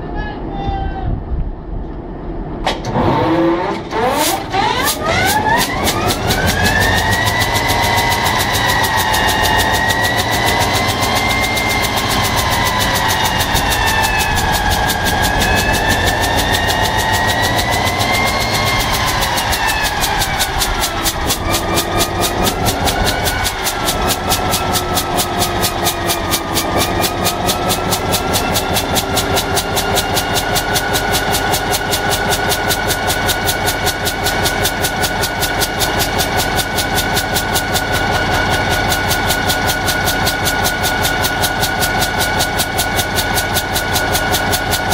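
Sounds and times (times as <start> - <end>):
diesel engine pulsing: 0.0 - 44.9
high wavering whine: 3.4 - 30.5.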